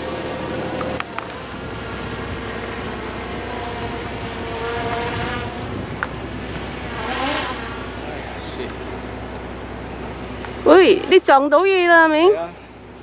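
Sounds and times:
ship engine hum: 0:00.0 - 0:13.0.

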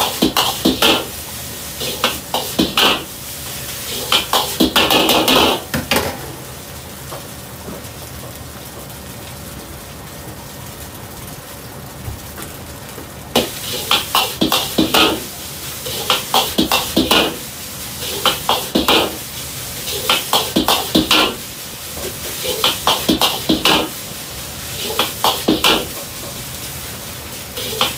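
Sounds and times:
rice frying in a wok: 0:00.0 - 0:27.9.

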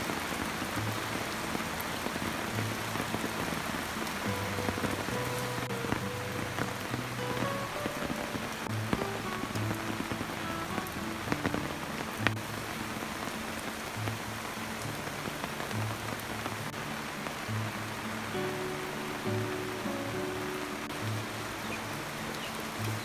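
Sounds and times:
louder raindrops: 0:00.0 - 0:23.0
rain falling on leaves and pond: 0:00.0 - 0:23.0.

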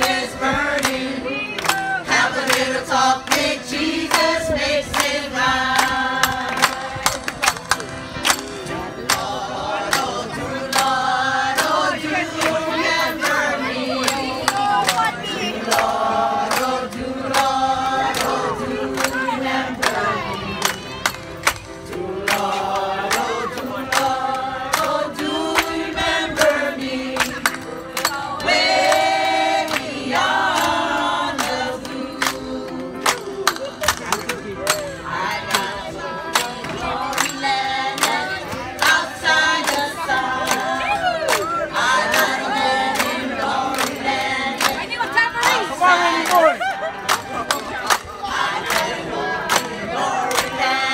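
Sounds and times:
group singing: 0:00.0 - 0:07.7, 0:08.3 - 0:50.9
hand claps: 0:01.6 - 0:04.3, 0:05.0 - 0:10.9, 0:18.2 - 0:25.8, 0:27.2 - 0:45.6, 0:46.2 - 0:50.9.

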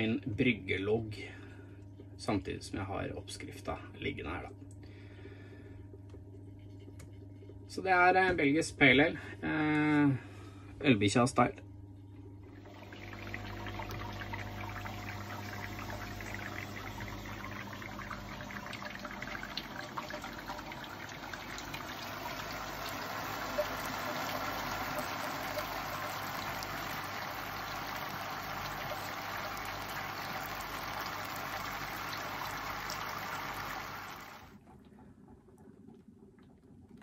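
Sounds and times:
electric pump hum: 0:11.9 - 0:37.0
water spraying and splashing: 0:21.2 - 0:34.5.

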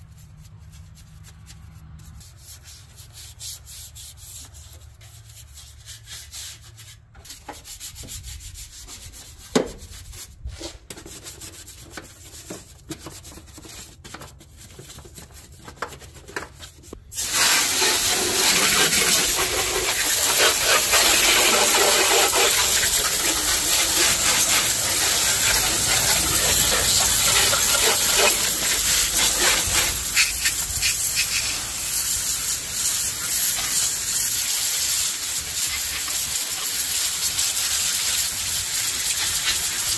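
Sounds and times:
stiff brush scrubbing: 0:00.0 - 0:34.6
hose water spraying: 0:17.0 - 0:39.9.

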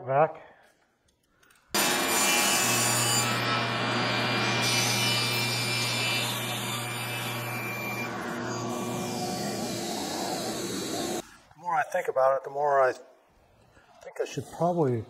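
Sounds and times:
power saw cutting wood: 0:01.8 - 0:11.2
shop vac running: 0:01.8 - 0:11.2.

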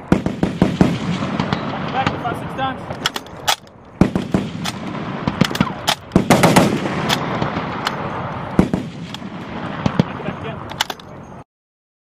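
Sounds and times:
machine guns firing: 0:00.1 - 0:02.3, 0:03.1 - 0:10.2.

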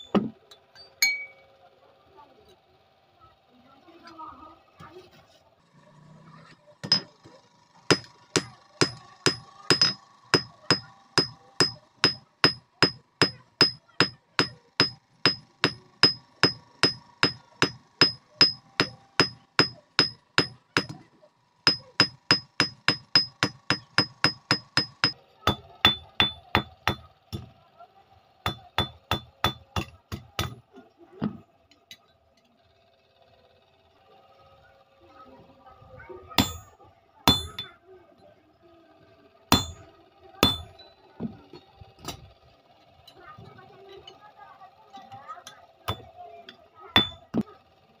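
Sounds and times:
hammer blows ringing on anvil: 0:07.9 - 0:21.0, 0:21.7 - 0:27.5, 0:28.5 - 0:30.6, 0:36.4 - 0:36.7, 0:37.3 - 0:37.8, 0:39.5 - 0:40.8, 0:45.9 - 0:46.1, 0:47.0 - 0:47.4.

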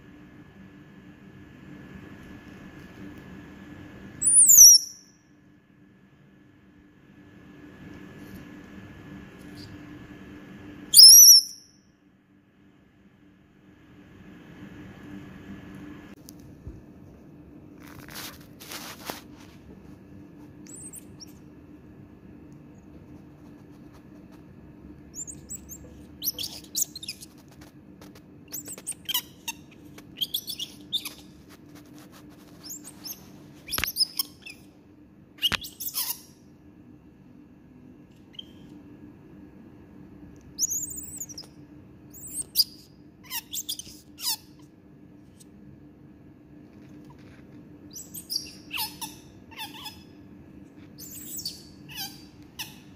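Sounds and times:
faint steady hum: 0:00.0 - 0:52.9
baby monkey squeaky calls: 0:04.2 - 0:05.0, 0:10.9 - 0:11.6, 0:20.7 - 0:21.4, 0:25.1 - 0:27.4, 0:28.5 - 0:31.4, 0:32.6 - 0:34.7, 0:35.4 - 0:36.4, 0:40.6 - 0:41.5, 0:42.1 - 0:44.6, 0:47.9 - 0:50.2, 0:51.0 - 0:52.9
short high-pitched chirps: 0:11.0 - 0:11.6
brief rustling: 0:17.8 - 0:20.6.

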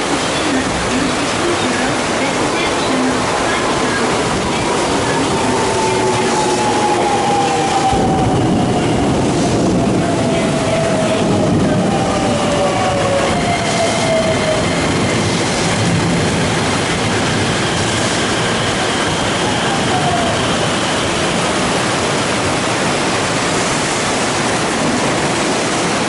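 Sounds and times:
heavy rain pouring: 0:00.0 - 0:26.0
train braking: 0:00.9 - 0:15.6.

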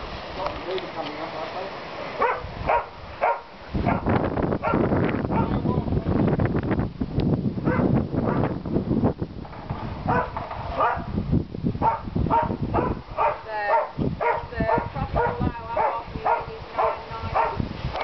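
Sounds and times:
low rumble of wind: 0:00.0 - 0:18.0
dog yapping: 0:02.2 - 0:04.8, 0:10.1 - 0:11.1, 0:11.8 - 0:17.6.

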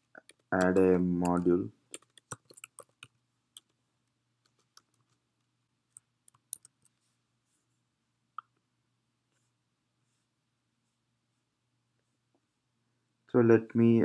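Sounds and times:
keyboard keystrokes: 0:00.2 - 0:03.7.

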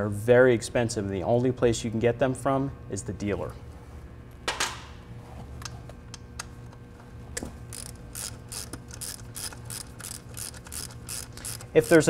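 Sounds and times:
ratchet wrench clicking: 0:07.7 - 0:12.0.

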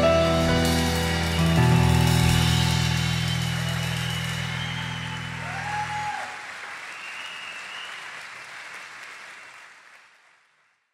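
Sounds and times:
audience applauding: 0:01.0 - 0:10.9.

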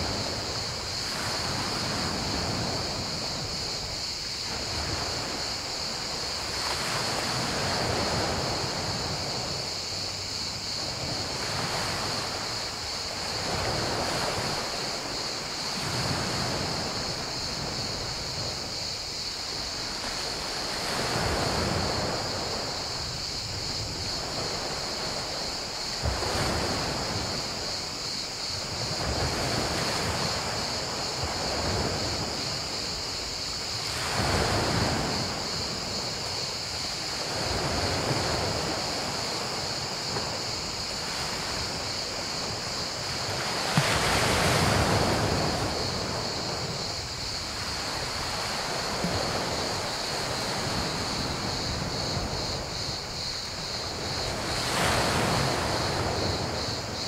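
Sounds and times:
cricket chorus: 0:00.0 - 0:57.0
waves on pebble beach: 0:00.0 - 0:57.0.

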